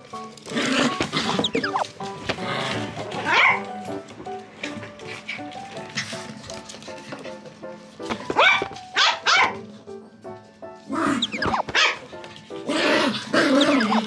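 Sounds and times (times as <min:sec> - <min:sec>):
background music: 0:00.0 - 0:14.0
small dogs barking and yapping: 0:00.9 - 0:01.9, 0:03.2 - 0:03.7, 0:11.0 - 0:12.1, 0:12.9 - 0:14.0.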